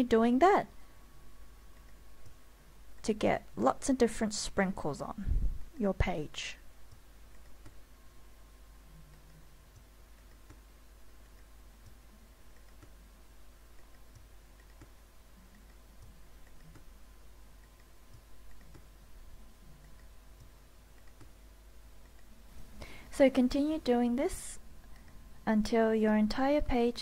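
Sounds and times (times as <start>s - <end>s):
low steady hum: 0.0s - 27.0s
mouse and keyboard clicks: 11.2s - 13.0s, 13.7s - 16.9s, 17.6s - 18.9s, 19.8s - 21.4s.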